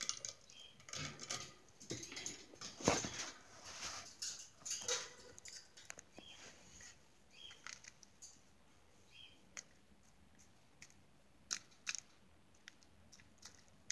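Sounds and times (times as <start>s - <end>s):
bird beak cracking seeds: 10.8s - 13.9s.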